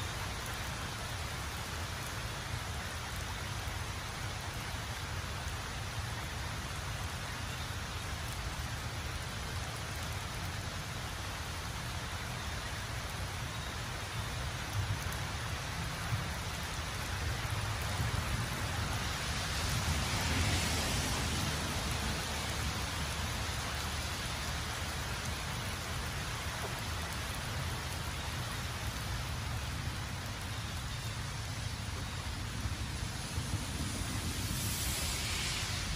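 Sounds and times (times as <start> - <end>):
rain on wet pavement: 0.0 - 35.9
low rumble: 32.2 - 35.9.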